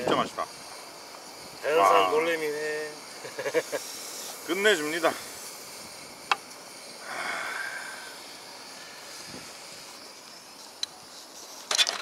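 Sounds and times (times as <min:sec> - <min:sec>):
faint outdoor hiss: 0:00.0 - 0:12.0
breathy exhale: 0:07.0 - 0:09.4.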